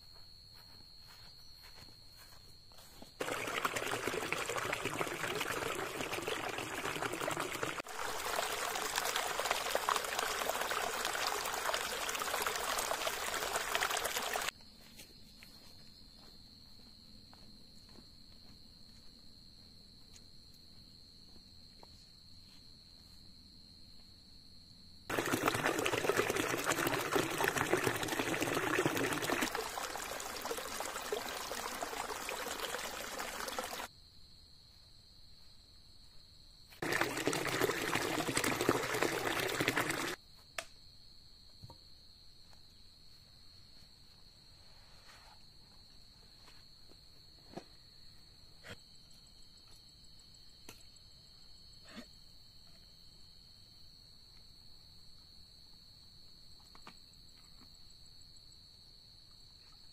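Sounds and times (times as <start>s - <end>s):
crickets droning: 0.0s - 59.9s
water splashing down waterfall: 3.2s - 14.5s, 25.1s - 33.9s, 36.8s - 40.2s.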